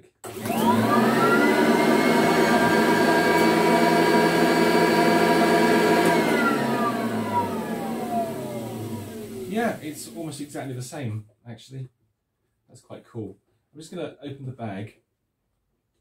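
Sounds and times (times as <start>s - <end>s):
vacuum cleaner motor whine: 0.2s - 10.4s.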